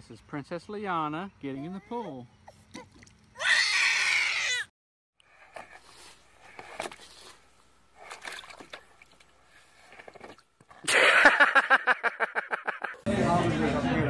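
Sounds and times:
faint water splashing: 0:02.4 - 0:03.5, 0:05.2 - 0:10.9
baby crying: 0:03.4 - 0:04.7.

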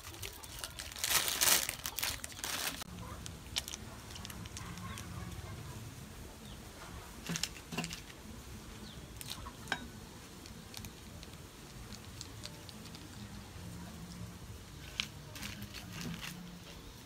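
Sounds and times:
plastic sachets crinkling: 0:00.0 - 0:05.6, 0:10.3 - 0:13.5, 0:14.7 - 0:16.7.

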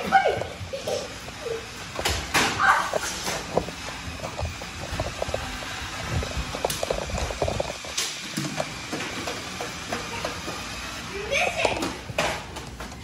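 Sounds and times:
body-worn camera rustling and clattering: 0:02.9 - 0:08.7.

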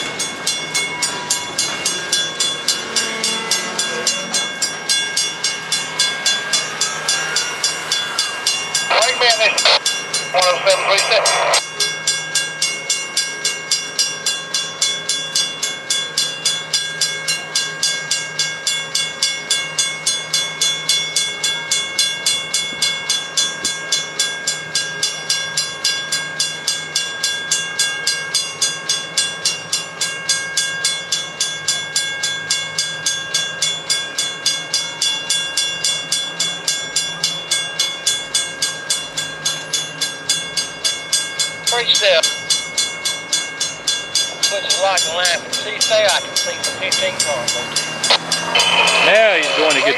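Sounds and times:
crossing bell ringing: 0:00.0 - 0:49.9.

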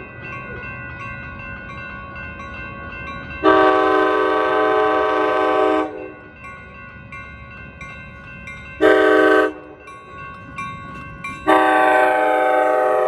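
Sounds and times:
crossing signal bell dinging: 0:00.0 - 0:13.0
train air horn blasts: 0:03.4 - 0:06.2, 0:08.8 - 0:09.7, 0:11.4 - 0:13.0.

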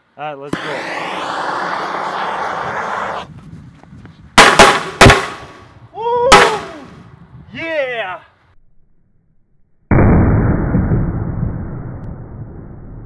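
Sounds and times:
firecracker bangs: 0:00.5 - 0:02.1, 0:04.4 - 0:05.7
gas torch hissing: 0:00.6 - 0:03.2.

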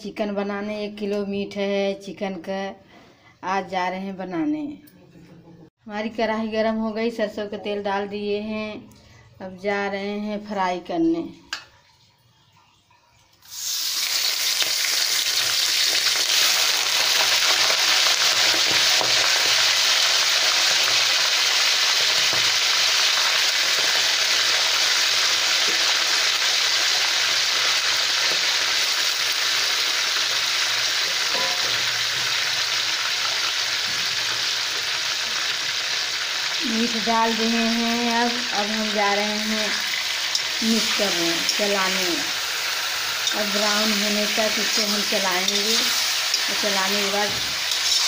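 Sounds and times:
chicken sizzling in hot oil: 0:13.4 - 0:48.0.

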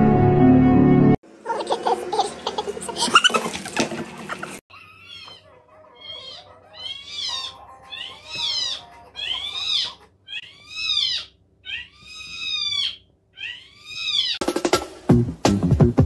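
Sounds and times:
cat meowing: 0:04.7 - 0:14.4.

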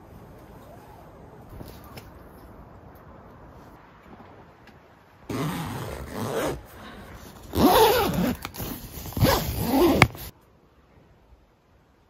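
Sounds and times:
tent zipper pulled open: 0:05.3 - 0:06.6, 0:07.4 - 0:10.3.

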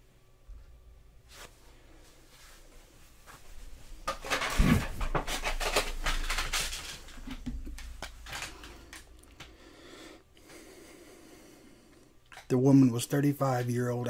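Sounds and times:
rustling near microphone: 0:01.3 - 0:09.6.

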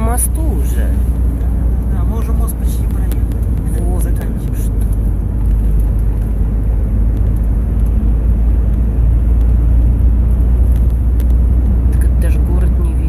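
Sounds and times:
tyres and engine rumble in car: 0:00.0 - 0:13.0.

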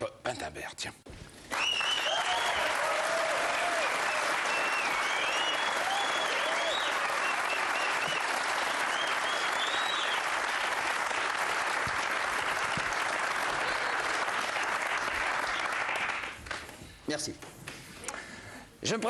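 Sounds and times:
audience applauding: 0:01.4 - 0:16.8
audience cheering: 0:01.5 - 0:16.3.

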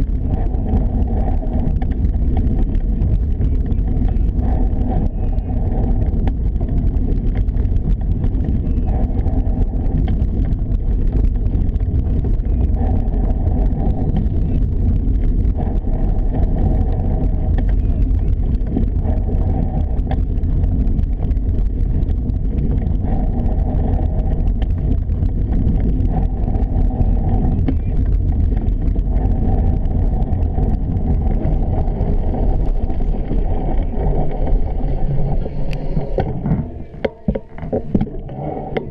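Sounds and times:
bicycle rattling over rough path: 0:00.0 - 0:38.9
wind buffeting microphone: 0:00.0 - 0:38.9.

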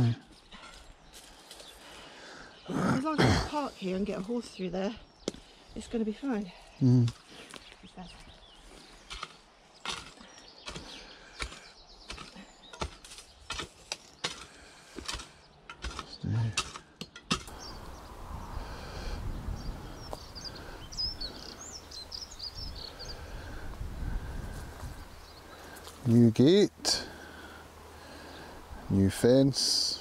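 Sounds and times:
small birds chirping: 0:00.0 - 0:30.0
wind rumbling on microphone: 0:17.5 - 0:26.1.

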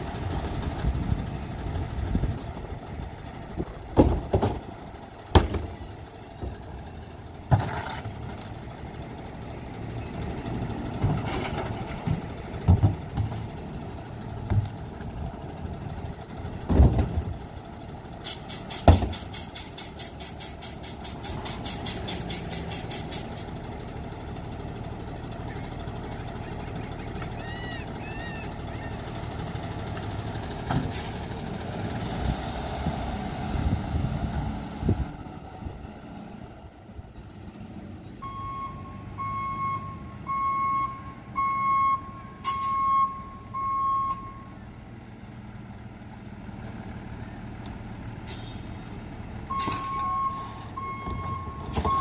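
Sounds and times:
garbage truck engine running: 0:00.0 - 0:52.0
air brakes hissing: 0:18.2 - 0:23.6, 0:30.8 - 0:31.3, 0:48.2 - 0:48.7, 0:49.5 - 0:50.7
back-up alarm beeping: 0:38.2 - 0:44.5, 0:49.5 - 0:52.0.

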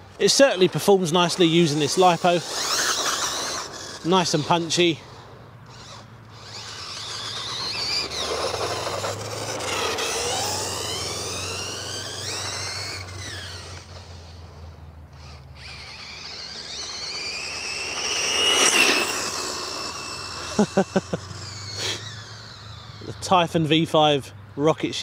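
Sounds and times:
rough noise: 0:00.0 - 0:23.6
rc car motor whine: 0:00.2 - 0:24.3.

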